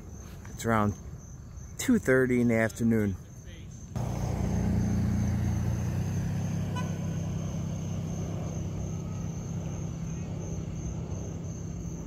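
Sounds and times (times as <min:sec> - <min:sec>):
crickets trilling: 0:00.0 - 0:12.0
vehicle engine idling: 0:04.0 - 0:12.0.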